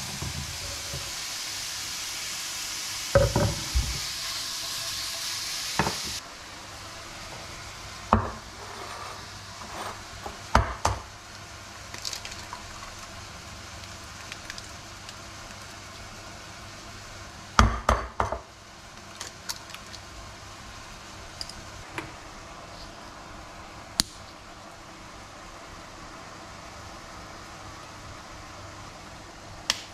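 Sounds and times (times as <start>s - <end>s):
mushrooms sizzling in frying pan: 0.0s - 22.4s.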